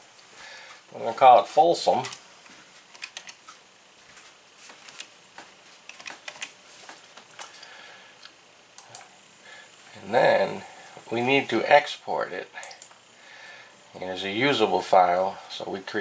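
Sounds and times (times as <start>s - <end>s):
keyboard typing: 2.9s - 3.6s, 5.9s - 7.5s.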